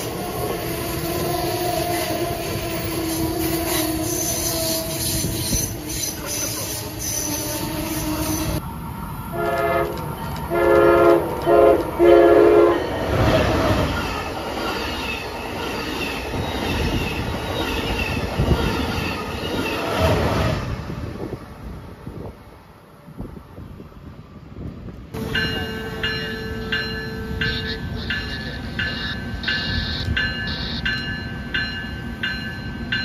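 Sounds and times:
train rushing past: 0:00.0 - 0:33.0
train whine and squeal: 0:00.0 - 0:33.0
train horn blasts: 0:09.3 - 0:13.2, 0:25.2 - 0:30.8.

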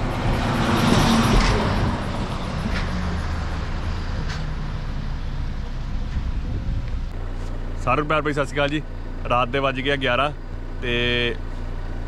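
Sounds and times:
car road noise: 0:00.0 - 0:12.0.

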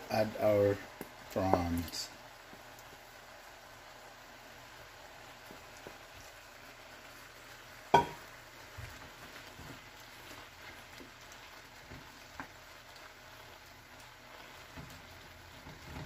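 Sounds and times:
food bubbling in a pan: 0:00.0 - 0:16.0
wooden spatula stirring: 0:05.3 - 0:16.0
knock on pan: 0:07.9 - 0:08.2.

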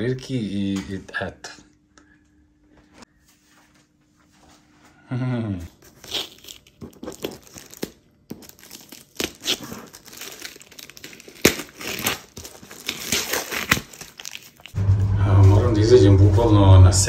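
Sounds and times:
paper tape peeling and tearing: 0:05.8 - 0:14.8
plastic crinkling: 0:05.9 - 0:14.8.

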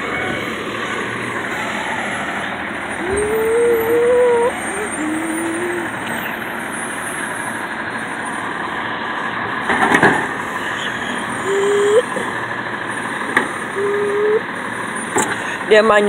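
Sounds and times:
diesel truck engine running: 0:00.0 - 0:16.0
high squeal: 0:01.5 - 0:07.2.

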